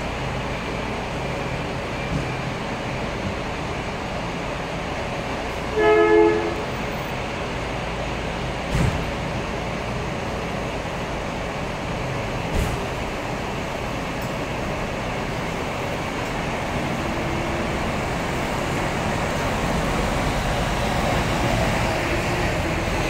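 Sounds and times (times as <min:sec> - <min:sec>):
diesel coach engines running: 0:00.0 - 0:23.0
two-tone horn blast: 0:05.7 - 0:06.8.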